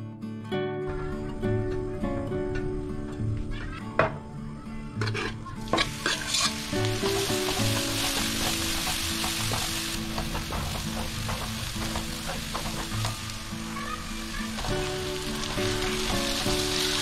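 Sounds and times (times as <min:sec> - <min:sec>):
garlic sizzling in hot oil: 0:05.0 - 0:17.0.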